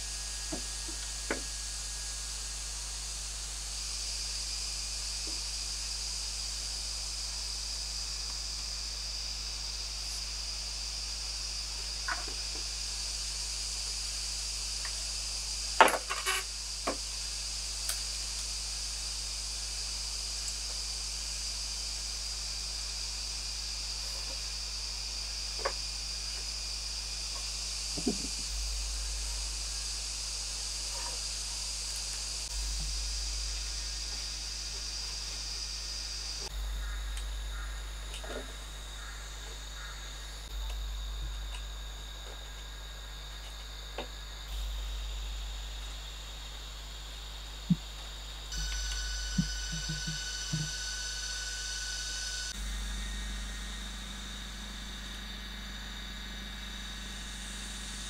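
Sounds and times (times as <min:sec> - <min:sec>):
insect chorus drone: 0:00.0 - 0:58.0
bamboo poles knocking: 0:00.5 - 0:01.5, 0:28.0 - 0:28.4.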